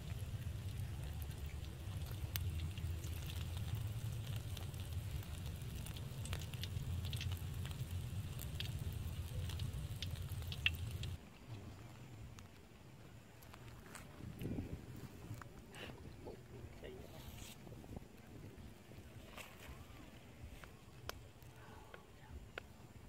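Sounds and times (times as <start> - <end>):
fritter frying in oil: 0.0 - 11.2
steady low rumble: 0.0 - 11.2
crackles and pops of frying: 0.0 - 15.6, 20.4 - 22.8.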